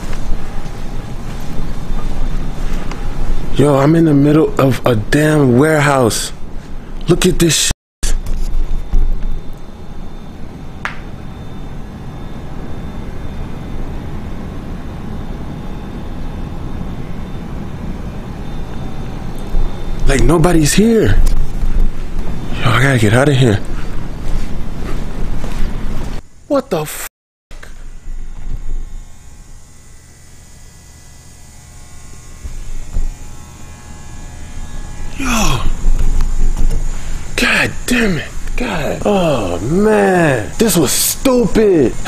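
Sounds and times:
low warehouse hum: 0:00.0 - 0:07.0, 0:27.6 - 0:42.0
faint high-pitched whine: 0:07.1 - 0:24.2
machinery rumble and hiss: 0:27.6 - 0:42.0.

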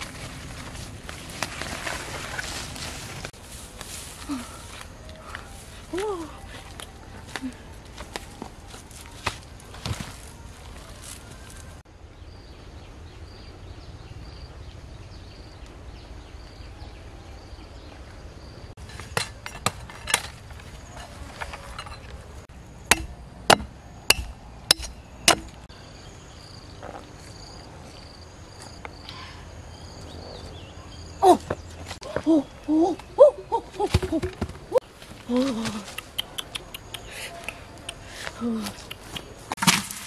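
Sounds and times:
machete chopping coconut husk: 0:22.9 - 0:25.6, 0:39.1 - 0:40.0.

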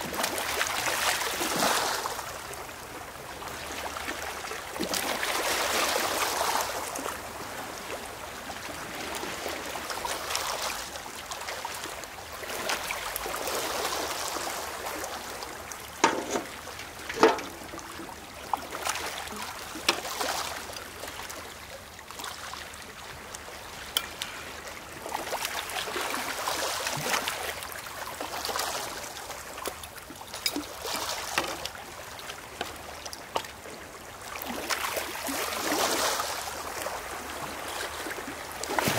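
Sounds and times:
small waves on pebble shore: 0:00.0 - 0:38.9
pail knocking on stones: 0:16.0 - 0:16.5, 0:17.1 - 0:18.1.

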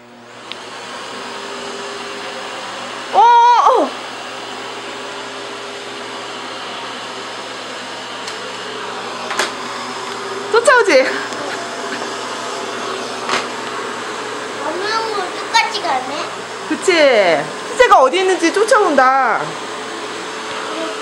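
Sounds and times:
vacuum cleaner running: 0:00.0 - 0:21.0
high-pitched voice crying out: 0:03.2 - 0:04.0
vacuum wand on wooden floor: 0:08.0 - 0:14.9.

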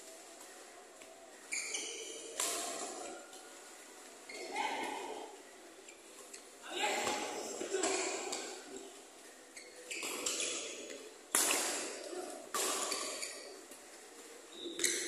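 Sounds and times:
rackets hitting shuttlecock: 0:10.0 - 0:13.6.

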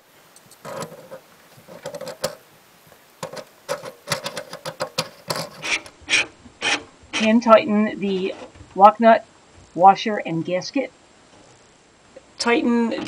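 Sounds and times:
metal parts clicking and scraping: 0:00.4 - 0:02.4, 0:03.2 - 0:05.9.

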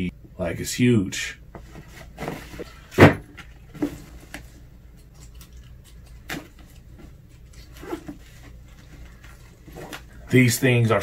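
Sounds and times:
bag rustling and clicking: 0:06.1 - 0:10.3.

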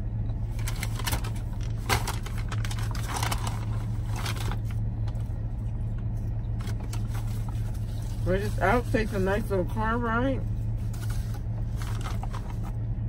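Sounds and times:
car engine idling: 0:00.0 - 0:13.0
paper food wrapper rustling: 0:00.4 - 0:12.9.

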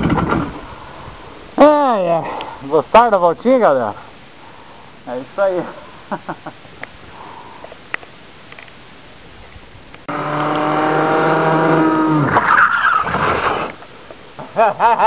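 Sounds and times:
go-kart engine passing at high revs: 0:10.1 - 0:13.8.

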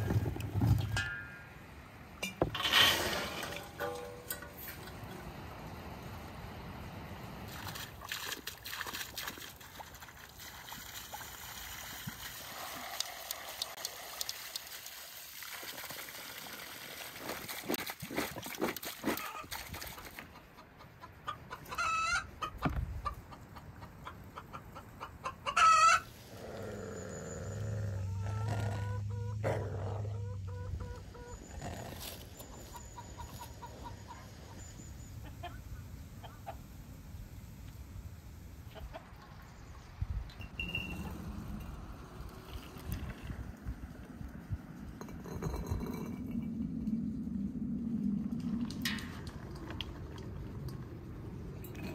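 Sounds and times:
chickens clucking: 0:20.0 - 0:26.1, 0:28.1 - 0:31.5, 0:32.4 - 0:36.7, 0:38.7 - 0:39.4
chicken wavering calls: 0:20.4 - 0:26.1.

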